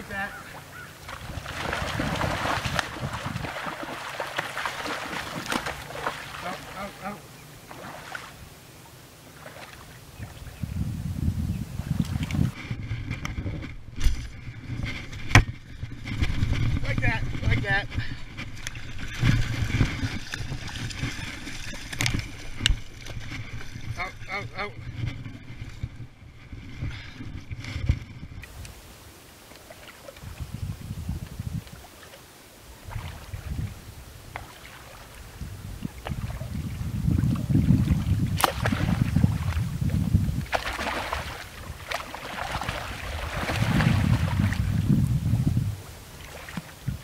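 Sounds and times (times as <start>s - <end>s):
wind buffeting microphone: 0.0s - 8.6s, 9.5s - 29.1s, 30.0s - 47.0s
floodwater sloshing: 0.0s - 10.6s, 17.9s - 47.0s
low rumbling bumps: 35.2s - 45.8s.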